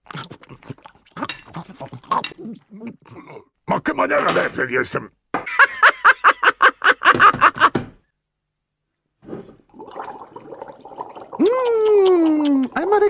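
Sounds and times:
slurp through drinking straw: 0:09.3 - 0:11.4.

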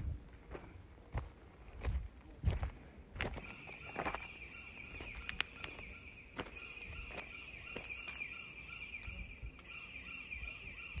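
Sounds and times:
footsteps on gravel: 0:00.4 - 0:08.2
high chirping from trees: 0:03.2 - 0:11.0.

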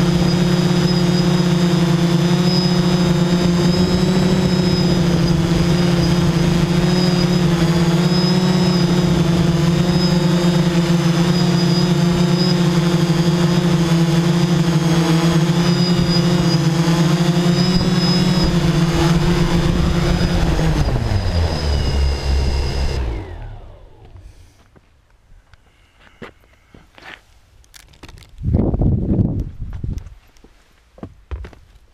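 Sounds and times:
small vehicle motor running: 0:00.0 - 0:24.6.

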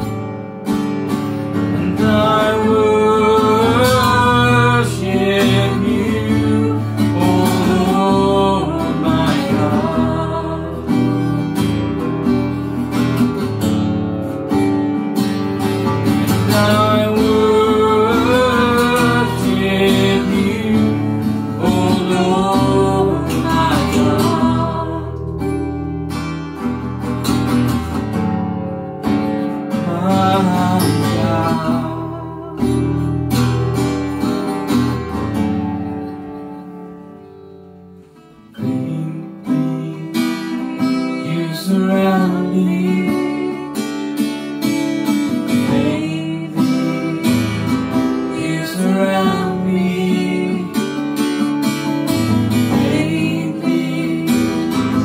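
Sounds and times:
acoustic guitar strumming: 0:00.0 - 0:55.0
person singing: 0:01.5 - 0:11.8, 0:16.1 - 0:25.5, 0:29.6 - 0:34.6, 0:38.5 - 0:44.2, 0:45.2 - 0:51.4, 0:52.2 - 0:55.0.

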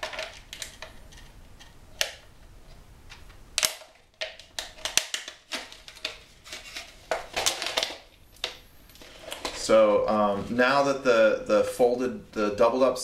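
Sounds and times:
plastic clicks and crackles: 0:00.0 - 0:02.3, 0:03.1 - 0:09.7.

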